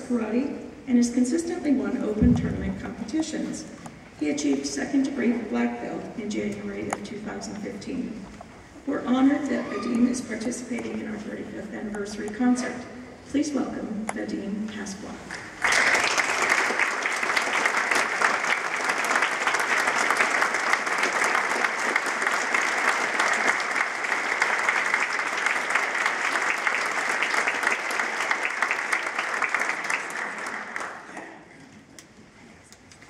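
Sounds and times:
audience applause: 0:15.3 - 0:31.4.

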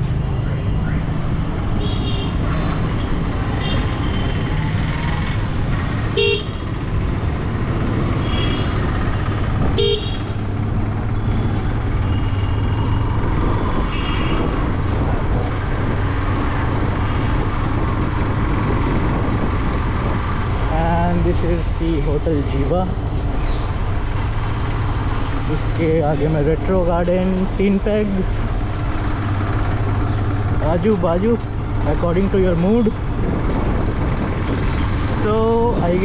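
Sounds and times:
motorcycle engine: 0:00.9 - 0:20.6
wind rumble: 0:02.4 - 0:36.0.

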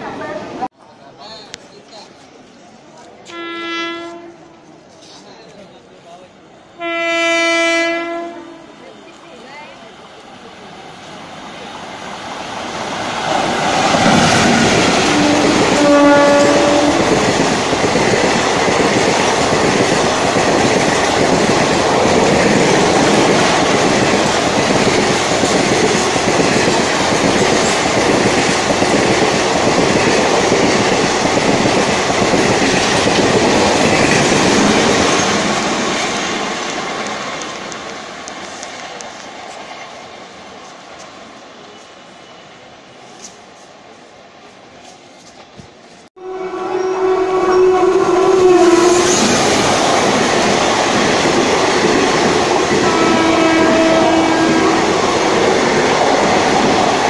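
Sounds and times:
train horn blast: 0:03.3 - 0:04.6, 0:06.8 - 0:08.8, 0:14.9 - 0:17.2, 0:46.2 - 0:49.4, 0:52.7 - 0:55.1
train wheels clattering over rails: 0:12.8 - 0:40.0.

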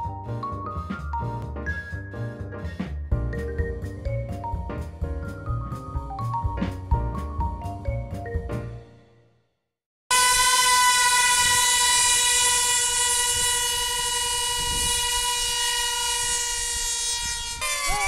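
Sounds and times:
model plane engines screaming: 0:10.1 - 0:18.0.

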